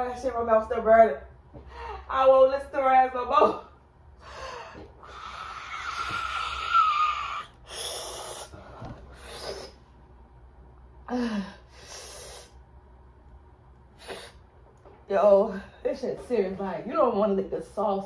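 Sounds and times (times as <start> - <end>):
woman gasping and breathing hard: 4.2 - 9.8
woman groaning: 5.0 - 8.5.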